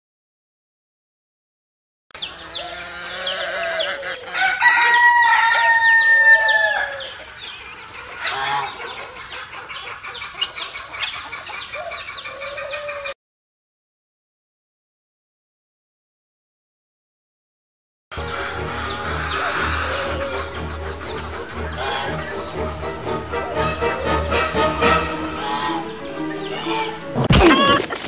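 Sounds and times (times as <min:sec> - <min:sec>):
rooster crowing: 0:02.2 - 0:07.2, 0:18.2 - 0:27.8
hens clucking: 0:02.2 - 0:13.2, 0:18.2 - 0:28.0.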